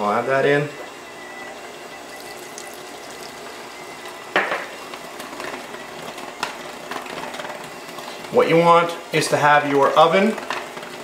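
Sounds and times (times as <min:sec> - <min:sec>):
juice pouring into batter: 0:02.0 - 0:03.7.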